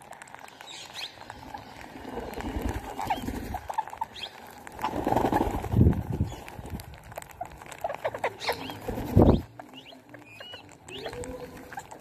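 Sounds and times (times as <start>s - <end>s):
parakeets squeaky calls: 0.7s - 5.5s, 7.3s - 12.0s.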